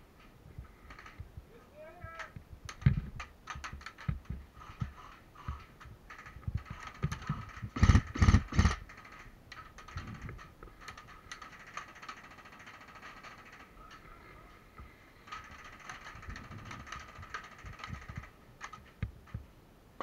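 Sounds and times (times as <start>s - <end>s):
clicks and knocks: 2.1s - 14.1s.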